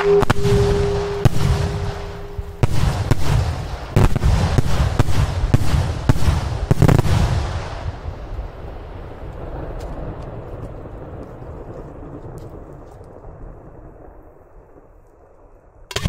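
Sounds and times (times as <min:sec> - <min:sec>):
whistle-like tone: 0:00.0 - 0:03.0
low rumble: 0:00.0 - 0:05.4
fireworks blasts: 0:00.0 - 0:10.7.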